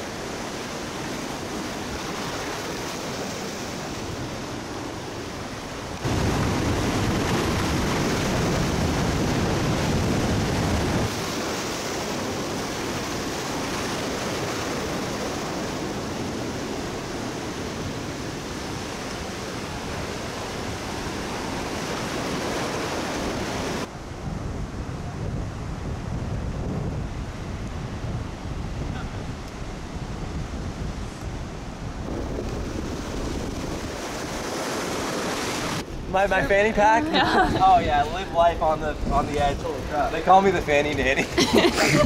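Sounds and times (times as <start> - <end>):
surf breaking against rocks: 5.8 - 23.9, 32.0 - 42.0.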